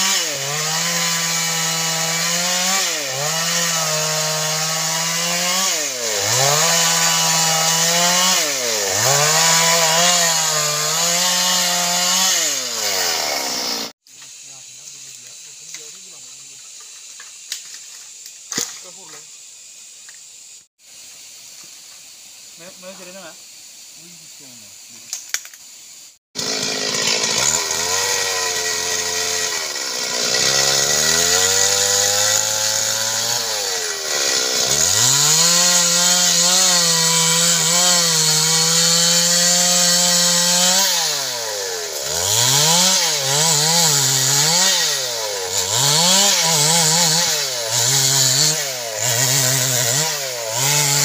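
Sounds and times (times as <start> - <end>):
chainsaw cutting log: 0.0 - 14.0, 26.4 - 51.0.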